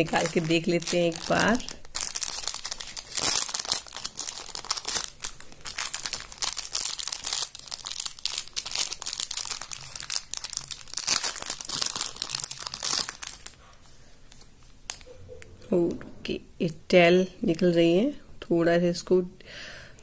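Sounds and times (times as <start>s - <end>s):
plastic packets crinkling: 0.0s - 13.7s.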